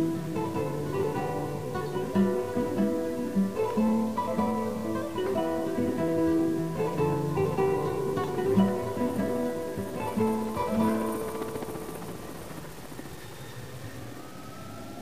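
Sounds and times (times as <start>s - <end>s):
acoustic guitar plucked notes: 0.0s - 11.6s.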